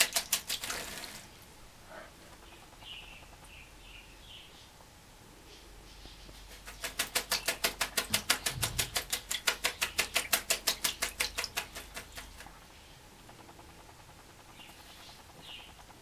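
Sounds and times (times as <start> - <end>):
bird wings fluttering: 6.5 - 12.5.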